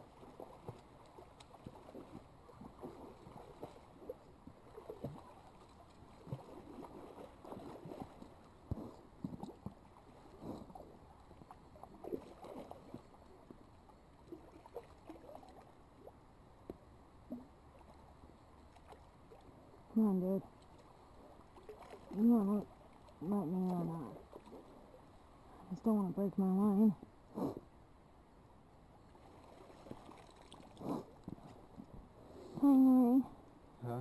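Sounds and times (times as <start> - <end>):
fish splashing in water: 0.1 - 8.3, 21.4 - 23.2.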